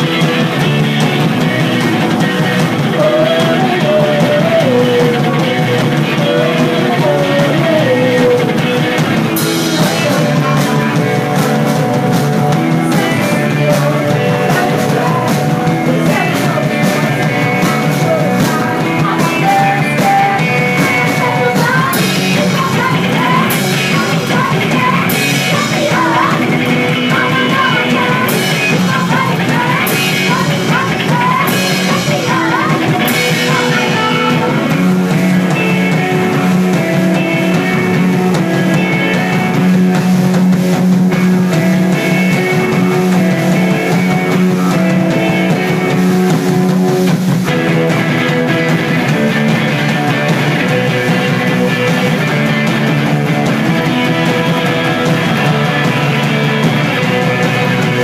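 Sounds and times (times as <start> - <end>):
punk rock band playing: 0.0 - 58.0
singers on vocals: 2.7 - 11.9, 12.6 - 35.8.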